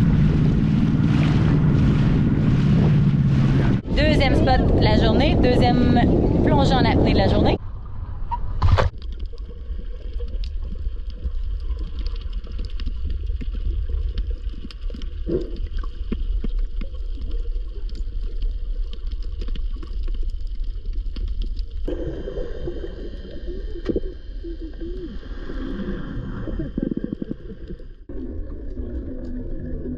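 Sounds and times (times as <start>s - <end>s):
low underwater rumble: 0.0s - 29.9s
water gurgles: 0.0s - 29.9s
small underwater clicks: 8.9s - 21.9s.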